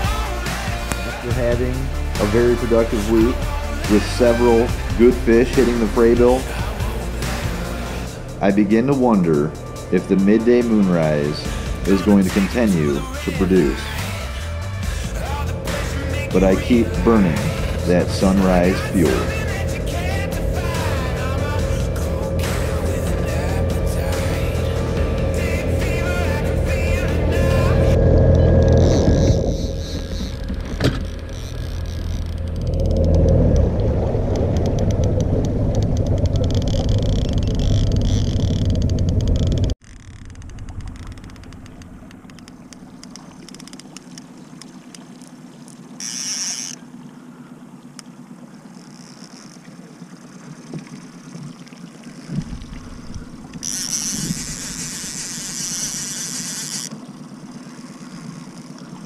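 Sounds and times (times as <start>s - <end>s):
outboard motor running: 0.0s - 59.0s
water noise: 0.0s - 59.0s
wind noise: 52.3s - 54.8s.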